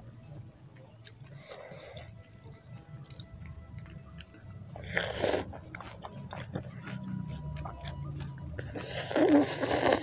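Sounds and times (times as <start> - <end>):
wet chewing: 1.0 - 10.0
noodles being slurped: 8.8 - 10.0.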